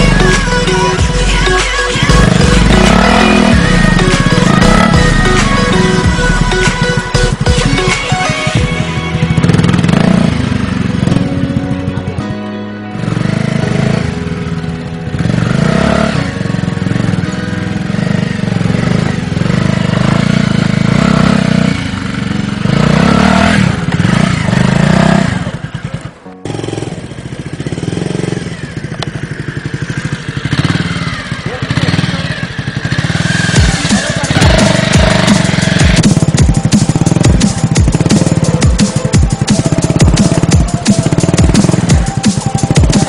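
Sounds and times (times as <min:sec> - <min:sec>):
motorcycle engine revving under load: 0:00.0 - 0:12.4, 0:13.0 - 0:43.0.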